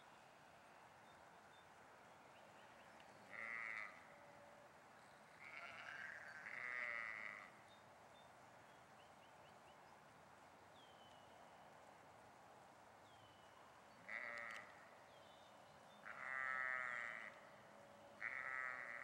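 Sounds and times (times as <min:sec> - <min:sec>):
sheep bleating: 0:03.3 - 0:04.1, 0:05.4 - 0:07.6, 0:14.1 - 0:14.7, 0:16.0 - 0:17.4, 0:18.2 - 0:19.0.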